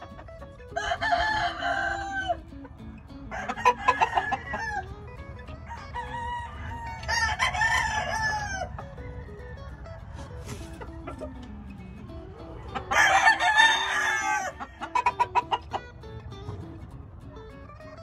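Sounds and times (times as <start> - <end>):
rooster crowing: 0.8 - 2.4, 3.3 - 5.0, 5.6 - 15.3.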